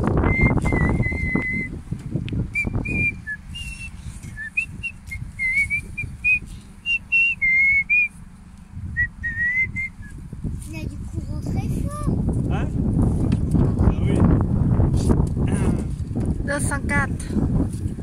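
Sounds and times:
low rumbling noise: 0.0 - 18.0
person whistling a tune: 0.2 - 1.8, 2.5 - 8.1, 9.0 - 10.2.

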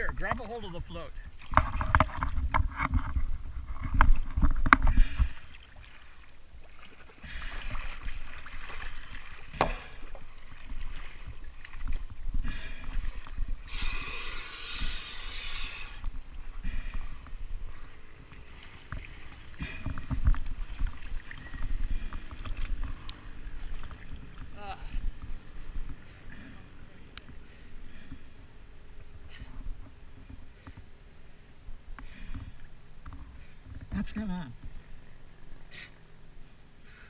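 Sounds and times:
water sloshing and splashing: 0.0 - 13.8, 14.6 - 33.9
hiss: 13.7 - 16.0.

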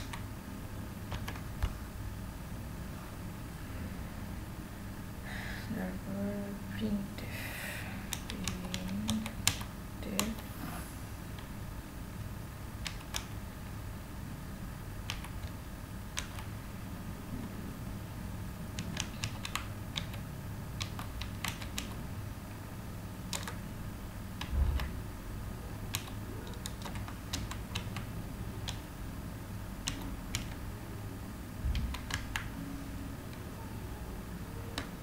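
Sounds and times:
steady low hum: 0.0 - 35.0
keyboard key clicks: 1.1 - 1.8, 8.1 - 10.4, 12.8 - 13.4, 15.1 - 16.5, 23.3 - 23.6, 25.9 - 28.8, 29.8 - 30.6, 31.7 - 32.5.

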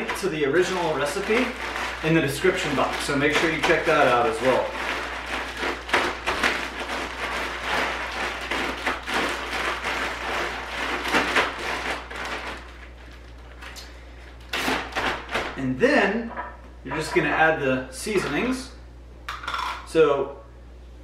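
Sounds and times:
nuts rattling in bag: 0.0 - 13.6
plastic bag crinkling: 0.0 - 15.6.

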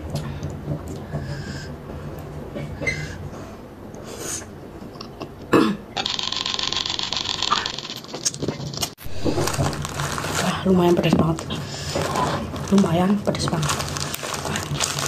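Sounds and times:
person burping: 5.5 - 6.1.

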